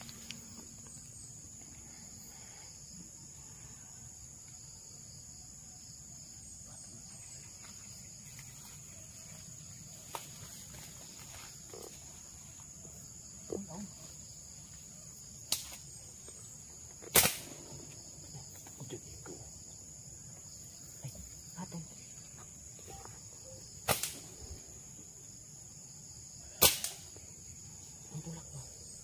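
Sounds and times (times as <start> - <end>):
high-pitched insect chorus: 0.0 - 29.0
slingshot snaps: 15.5 - 15.8, 17.1 - 17.5, 23.9 - 24.3, 26.6 - 27.1.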